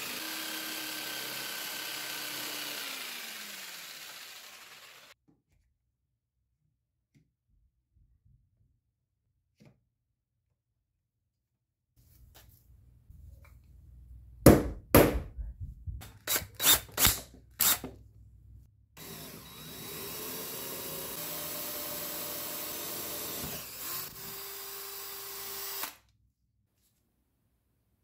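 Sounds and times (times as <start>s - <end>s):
cordless drill boring: 0.0s - 5.2s, 16.2s - 17.9s, 19.0s - 26.1s.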